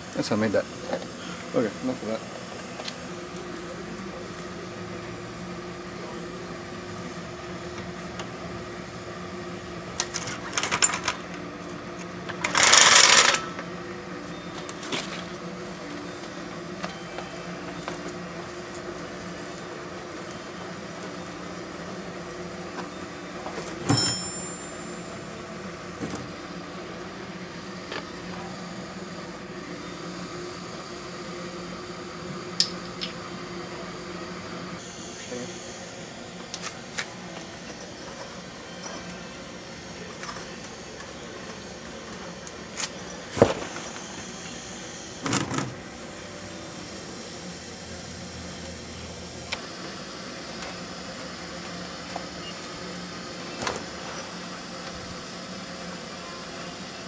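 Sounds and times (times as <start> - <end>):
sharp ringing clink: 23.9 - 25.0.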